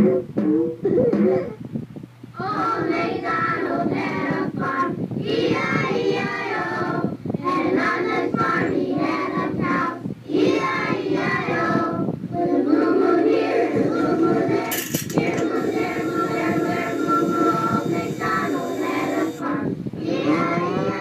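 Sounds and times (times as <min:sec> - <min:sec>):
song with voices singing: 0:07.8 - 0:21.0.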